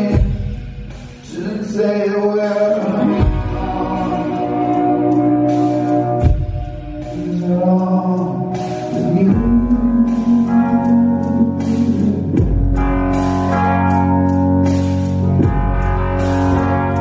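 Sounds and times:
low bass notes: 0:00.0 - 0:17.0
person singing: 0:01.2 - 0:06.4, 0:07.0 - 0:13.2
electric keyboard chords: 0:02.7 - 0:17.0.

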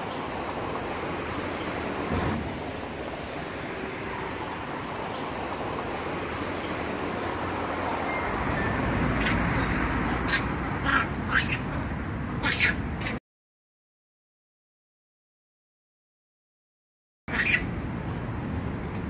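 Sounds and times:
outdoor background rush: 0:00.0 - 0:13.2, 0:17.3 - 0:19.0.

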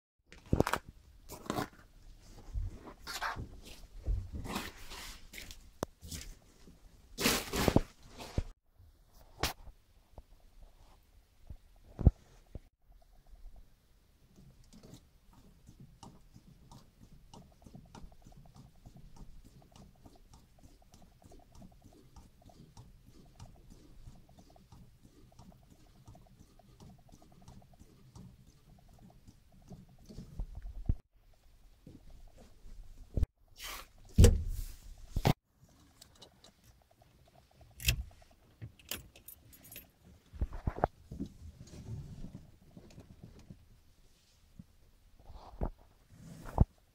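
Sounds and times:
car keys jangling: 0:38.8 - 0:39.9.

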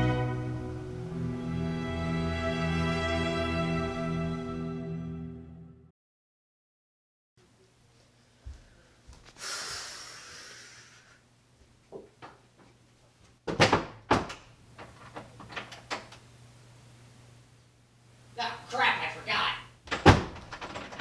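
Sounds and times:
soft footsteps: 0:07.5 - 0:09.4, 0:11.5 - 0:13.4
wooden door knocking shut: 0:13.4 - 0:14.5, 0:19.9 - 0:21.0.

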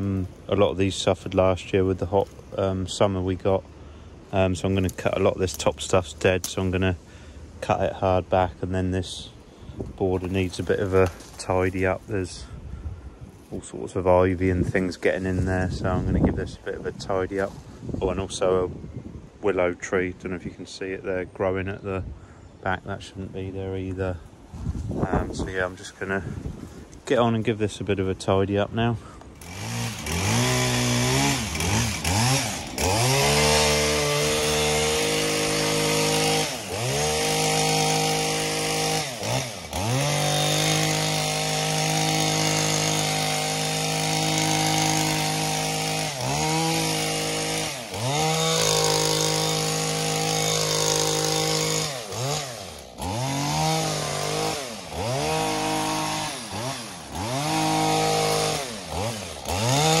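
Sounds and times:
power hedge trimmer running: 0:10.1 - 0:12.5, 0:29.2 - 1:00.0.

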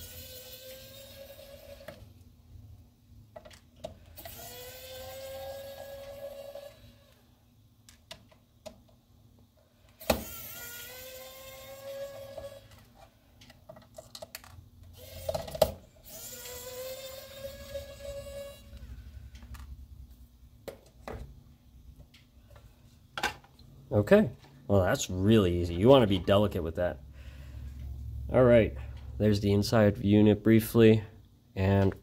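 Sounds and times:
electric screwdriver motor whine: 0:00.0 - 0:02.0, 0:04.2 - 0:07.2, 0:10.0 - 0:12.7, 0:15.0 - 0:18.8.

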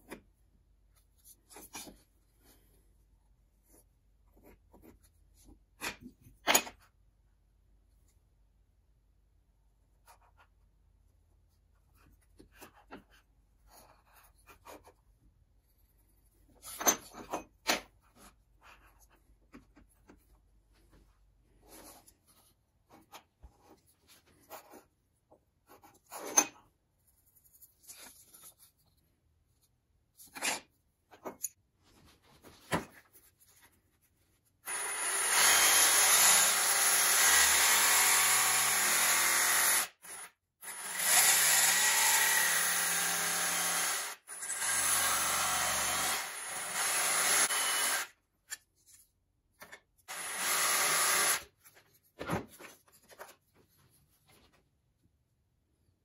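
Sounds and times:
jigsaw cutting plywood: 0:34.6 - 0:48.2, 0:50.1 - 0:51.5.

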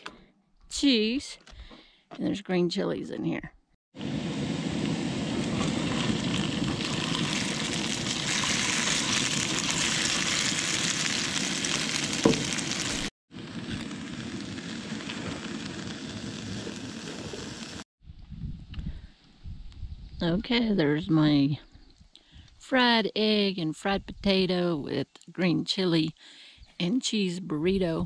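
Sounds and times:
potatoes sizzling in oil: 0:04.7 - 0:13.1
egg sizzling in skillet: 0:04.7 - 0:17.8.

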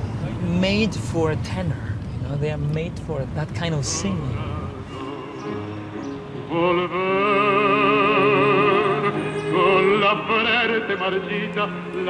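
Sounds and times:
operatic tenor singing: 0:03.8 - 0:12.0
instrumental accompaniment: 0:04.7 - 0:10.7.

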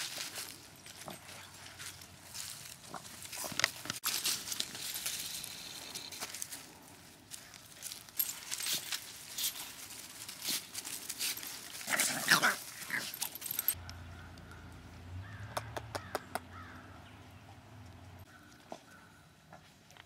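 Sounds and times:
puppies scampering through leaves: 0:00.0 - 0:13.8.

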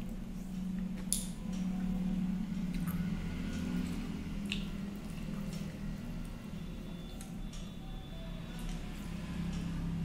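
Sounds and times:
steady low hum: 0:00.0 - 0:10.0
mouth clicks and smacks: 0:04.4 - 0:05.6.

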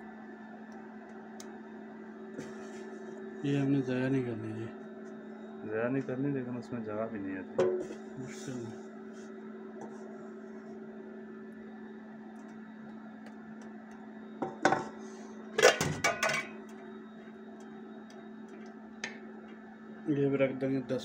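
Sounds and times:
induction cooktop hum: 0:00.0 - 0:21.0
wooden spatula knocking on pot: 0:07.6 - 0:08.0.

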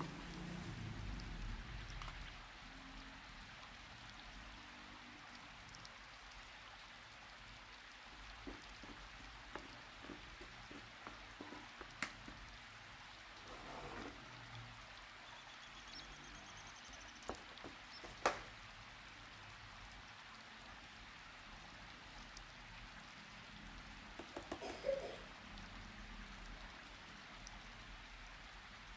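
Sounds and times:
utensils tapping on plastic plate: 0:24.2 - 0:25.0.

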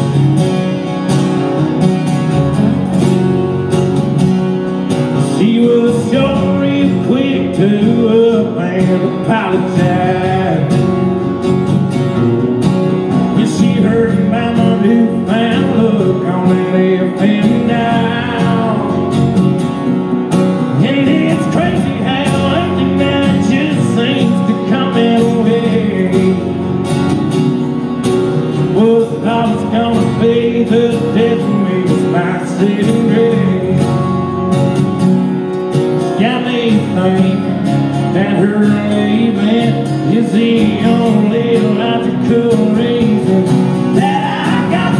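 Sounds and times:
acoustic guitars strumming: 0:00.0 - 0:44.9
man singing: 0:05.1 - 0:11.1, 0:13.0 - 0:19.3, 0:20.6 - 0:26.8, 0:28.5 - 0:34.4, 0:36.0 - 0:44.9.

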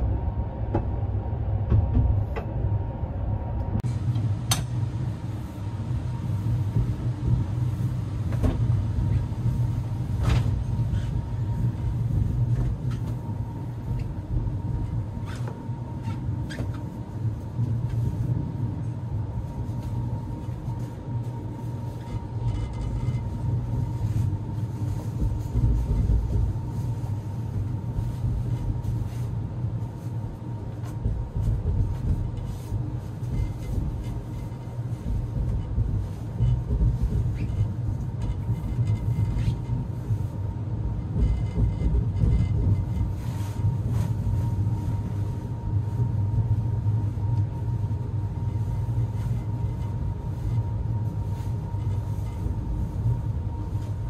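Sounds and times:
train rumbling on track: 0:00.0 - 0:54.0.

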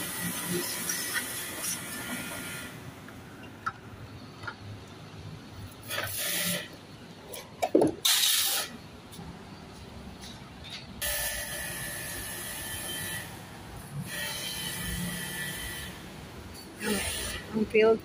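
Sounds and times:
pressure washer spraying: 0:05.8 - 0:06.6, 0:08.0 - 0:08.7.

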